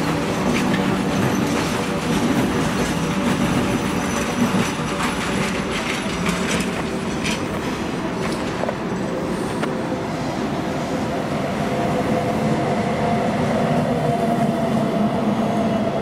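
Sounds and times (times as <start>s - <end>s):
wheels clicking over rail joints: 0.0s - 9.8s
train wagons rumbling: 0.0s - 16.0s.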